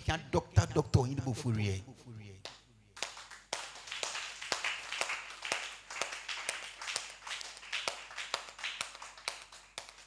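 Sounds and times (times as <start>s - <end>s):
hands clapping: 2.4s - 10.0s.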